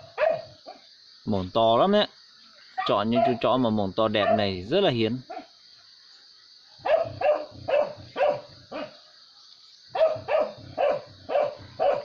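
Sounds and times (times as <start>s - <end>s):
dog barking: 0.0s - 0.8s, 4.2s - 4.5s, 5.3s - 5.5s, 6.8s - 9.0s, 9.9s - 12.0s.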